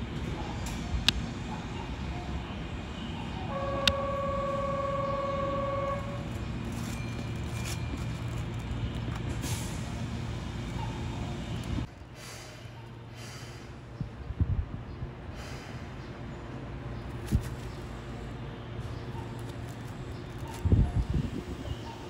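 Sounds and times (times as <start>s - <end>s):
electric train running hum: 0.0s - 22.0s
standing train hum: 0.0s - 22.0s.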